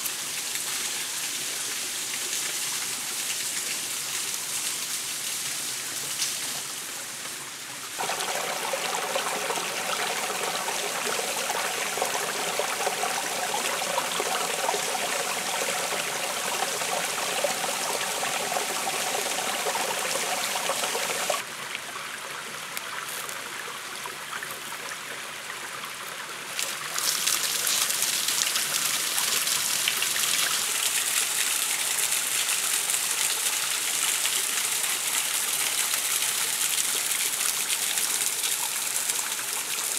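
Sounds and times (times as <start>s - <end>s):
stream trickling over rocks: 0.0s - 39.9s
water splashing from bamboo pipe: 8.0s - 21.4s, 26.5s - 39.9s.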